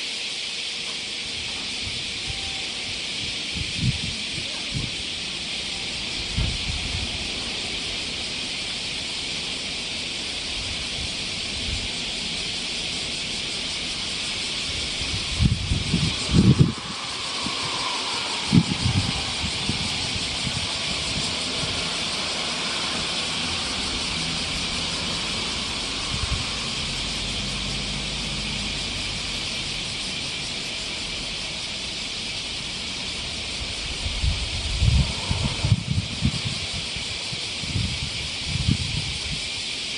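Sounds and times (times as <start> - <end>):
cicada chorus drone: 0.0 - 39.9
wind rumble on microphone: 1.3 - 39.9.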